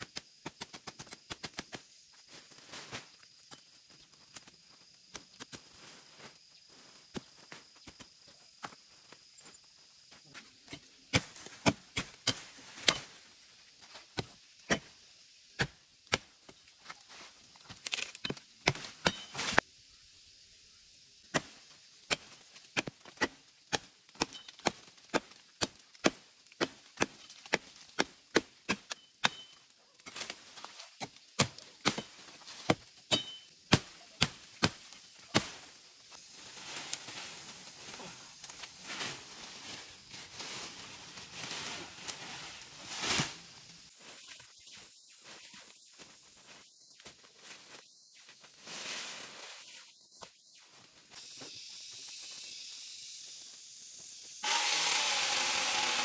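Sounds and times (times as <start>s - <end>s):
machete chopping wood: 17.8s - 19.6s, 21.3s - 30.3s, 31.0s - 35.7s
leaves rustling: 33.6s - 46.6s, 47.3s - 50.1s.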